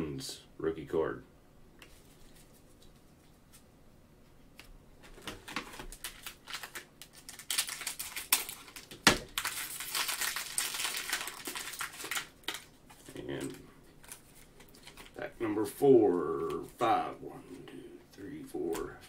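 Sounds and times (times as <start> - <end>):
plastic wrapper crinkling: 5.1 - 15.3.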